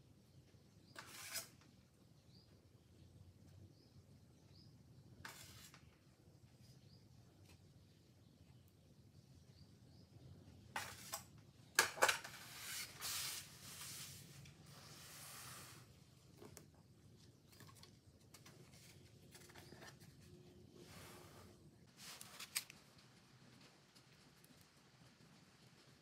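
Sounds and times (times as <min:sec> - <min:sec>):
soft scraping rustle: 0:05.2 - 0:06.0, 0:12.2 - 0:16.6, 0:17.4 - 0:24.5.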